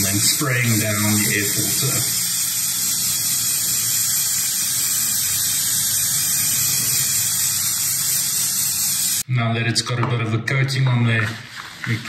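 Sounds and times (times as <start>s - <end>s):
aerosol spray hissing: 0.0s - 9.2s.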